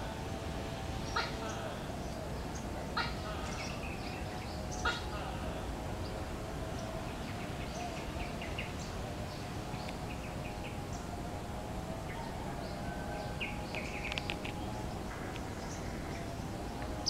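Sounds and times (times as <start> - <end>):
steady low background noise: 0.0 - 17.0
bird chirps: 12.1 - 17.0.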